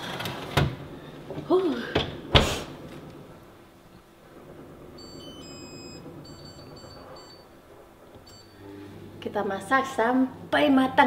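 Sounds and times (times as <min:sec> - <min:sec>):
oven control panel beeps: 0:05.0 - 0:07.6, 0:08.2 - 0:08.7
long electronic tone: 0:08.2 - 0:09.1.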